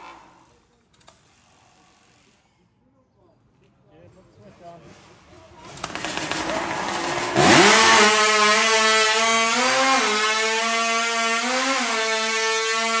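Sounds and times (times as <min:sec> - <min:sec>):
chainsaw engine revving and cutting log: 0:00.0 - 0:00.5, 0:05.8 - 0:13.0.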